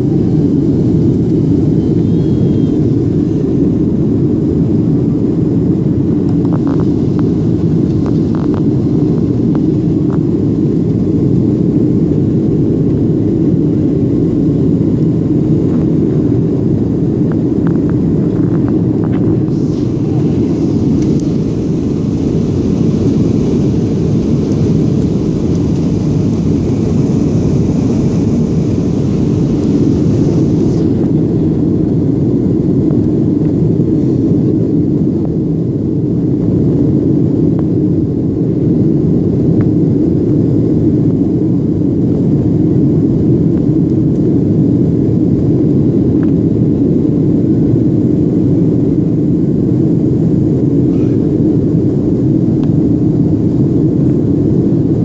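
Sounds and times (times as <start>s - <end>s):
jet cabin engine rumble: 0.0s - 55.0s
high airflow hiss: 18.9s - 32.7s.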